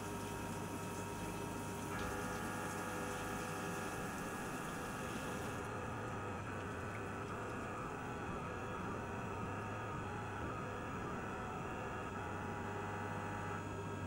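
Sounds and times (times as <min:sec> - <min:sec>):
mill spindle running: 0:00.0 - 0:13.7.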